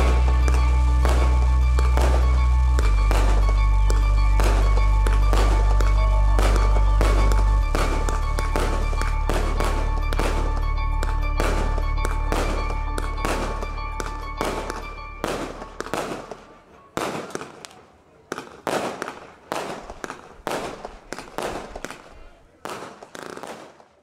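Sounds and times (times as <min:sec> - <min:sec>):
music with steady bass: 0:00.0 - 0:16.4
fireworks bangs: 0:00.0 - 0:24.0.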